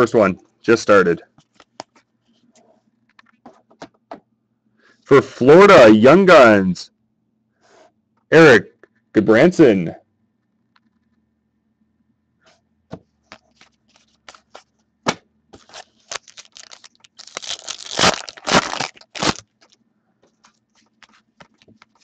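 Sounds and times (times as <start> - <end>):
trading cards shuffled by hand: 13.3 - 14.8, 15.5 - 22.0.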